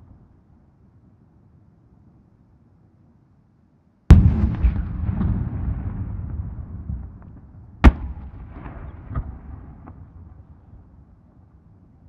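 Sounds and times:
rolling echo: 0:04.1 - 0:11.1.

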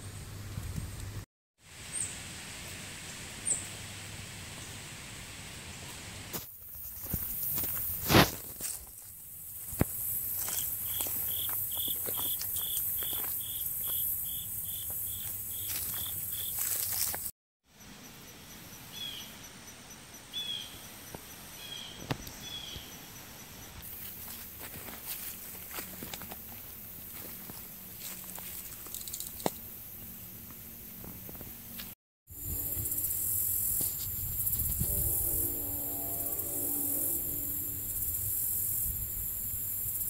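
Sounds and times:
insect chorus hiss: 0:06.3 - 0:31.7, 0:32.3 - 0:40.0
repeating high note: 0:34.7 - 0:38.4.

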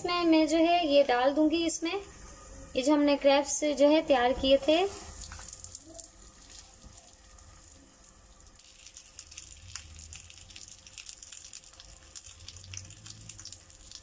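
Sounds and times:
food sizzling in oil: 0:04.6 - 0:14.0.

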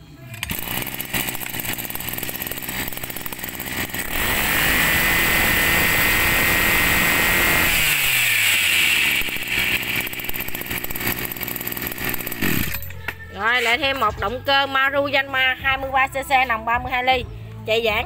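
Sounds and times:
brush cutter engine revving: 0:00.2 - 0:13.0.

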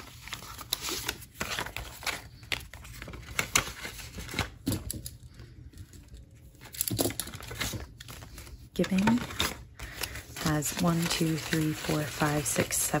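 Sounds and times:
paper banknotes rustling: 0:00.0 - 0:04.9, 0:06.5 - 0:13.0.

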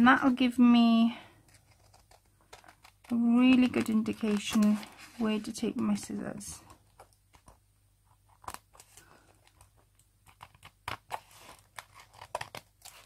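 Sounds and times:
scissors snipping paper: 0:10.2 - 0:13.0.

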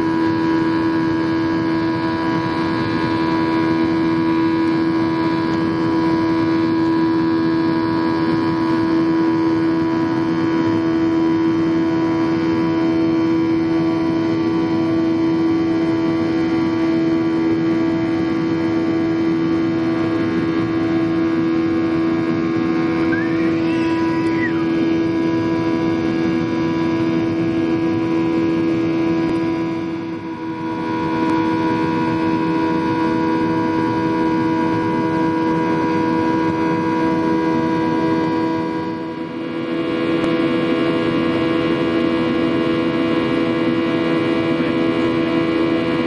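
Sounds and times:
jet engine drone in cabin: 0:00.0 - 0:46.0.

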